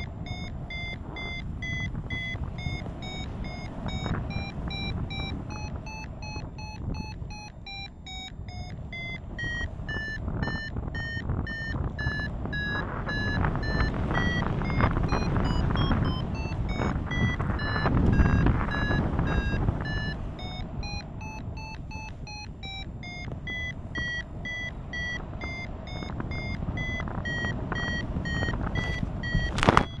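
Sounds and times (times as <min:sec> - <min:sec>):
variometer beeping: 0:00.0 - 0:30.0
wind rushing over microphone: 0:00.0 - 0:30.0.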